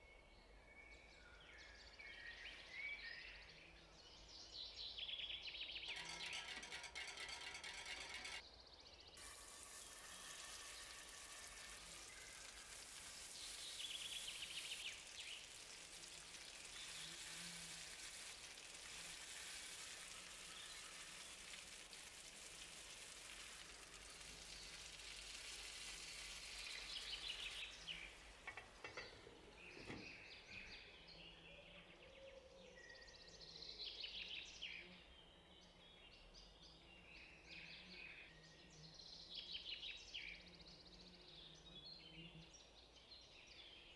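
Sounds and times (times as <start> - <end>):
patties sizzling in oil: 9.2 - 30.0.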